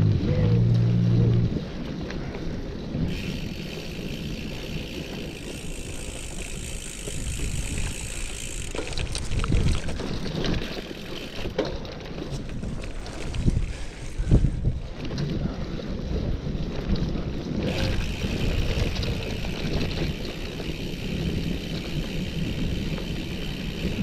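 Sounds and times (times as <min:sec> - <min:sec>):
wind on microphone: 0:00.0 - 0:10.9, 0:12.3 - 0:24.0
bike tyres on dirt: 0:00.0 - 0:24.0
bike rattles and knocks: 0:00.3 - 0:24.0.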